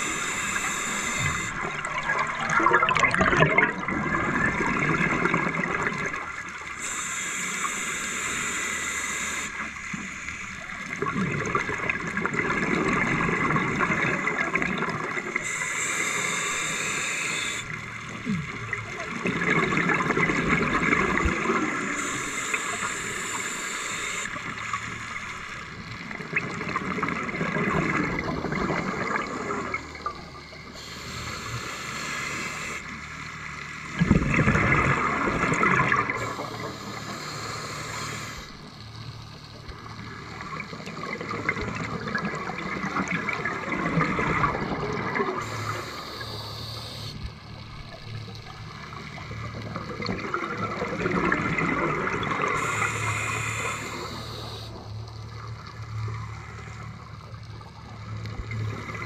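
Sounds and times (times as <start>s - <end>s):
hissing regulator inhale: 0.0s - 2.5s, 6.6s - 11.0s, 15.2s - 18.4s, 20.0s - 26.1s, 28.1s - 34.0s, 34.8s - 47.6s, 52.1s - 57.2s
bubbling gurgling exhale: 0.0s - 8.6s, 9.4s - 24.7s, 25.6s - 32.9s, 33.9s - 38.8s, 39.8s - 54.9s.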